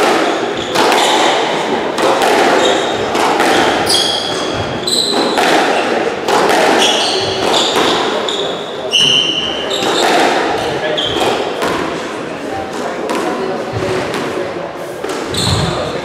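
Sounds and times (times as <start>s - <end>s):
squash ball cracking off racquets: 0.0s - 8.3s, 9.0s - 14.4s
shoes squeaking on wooden floor: 2.5s - 5.9s, 6.7s - 10.2s, 10.8s - 11.4s, 15.3s - 15.9s.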